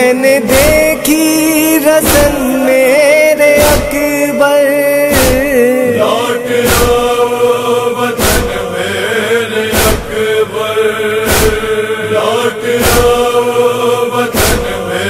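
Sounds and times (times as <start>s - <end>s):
chorus chanting: 0.0s - 15.0s
heavy drum beat: 0.5s - 1.2s, 2.0s - 2.6s, 5.2s - 5.6s, 6.7s - 7.2s, 9.7s - 10.2s, 11.3s - 11.8s, 12.8s - 13.3s.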